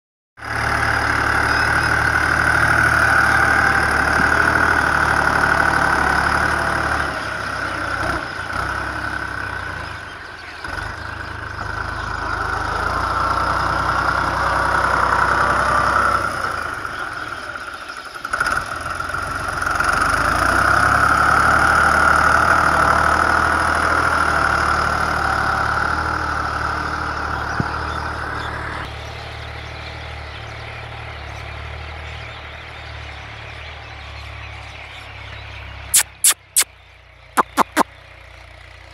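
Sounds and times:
vehicle engine idling: 16.4 - 19.6, 23.3 - 38.9.

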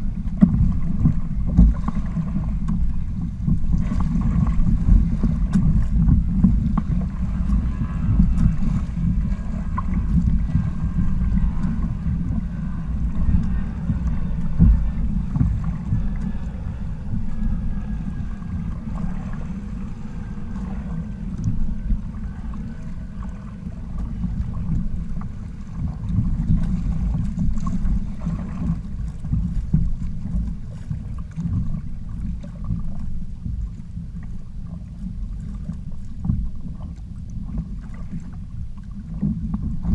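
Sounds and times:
water slapping along hulls: 0.0 - 39.9
wind buffeting microphone: 0.0 - 39.9.

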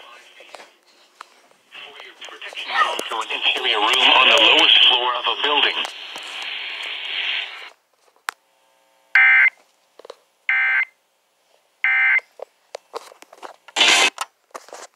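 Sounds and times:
radio hiss: 1.7 - 7.8, 13.8 - 14.1.

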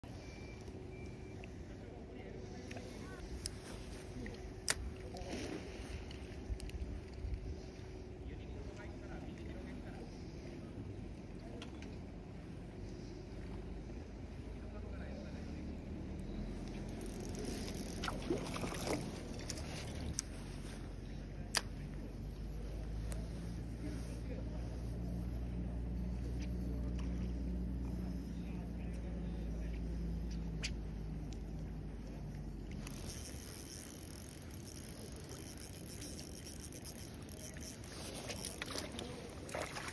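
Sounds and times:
fishing reel clicks and knocks: 16.6 - 20.3, 21.4 - 23.8, 24.8 - 39.0.

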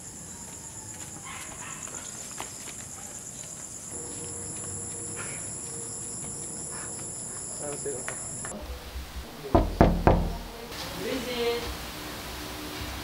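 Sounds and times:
crickets chirping: 0.0 - 12.2
knocks on a wooden door: 9.4 - 10.7.

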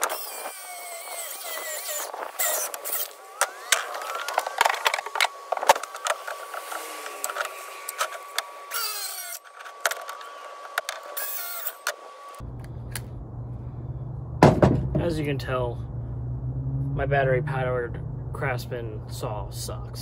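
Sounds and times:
power saw whine: 0.0 - 13.0.

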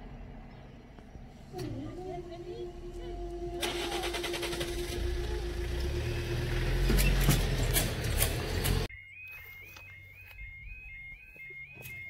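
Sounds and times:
car engine and tyres passing: 0.0 - 8.9
steady warning tone: 1.6 - 12.0.

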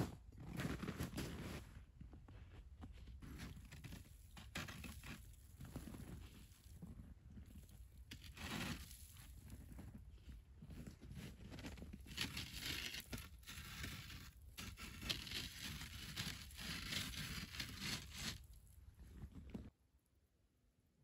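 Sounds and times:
rustling and crunching of dry reeds: 11.1 - 18.6.

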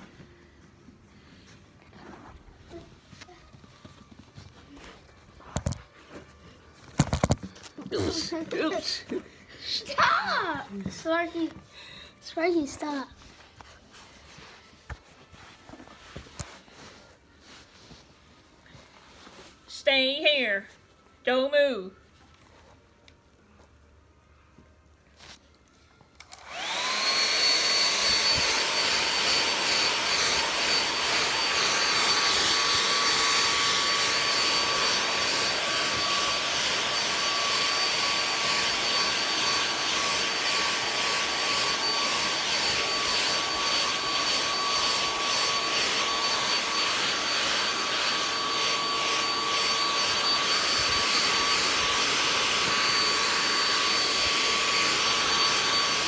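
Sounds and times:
hair dryer running: 26.2 - 56.0.

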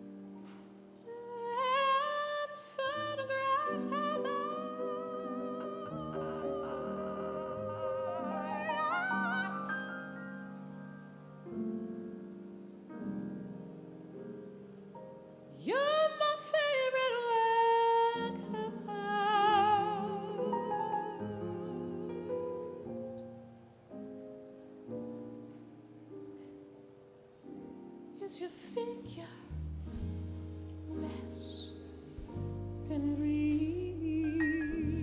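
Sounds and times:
woman singing jazz vocals: 1.0 - 10.3, 15.5 - 22.8, 28.2 - 29.6, 30.8 - 35.0.

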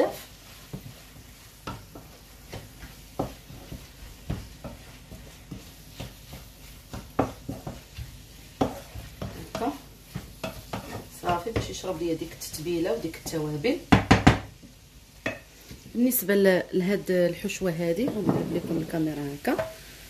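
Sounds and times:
spatula scraping frying pan: 0.0 - 13.7, 18.0 - 20.0
food frying: 0.0 - 20.0.

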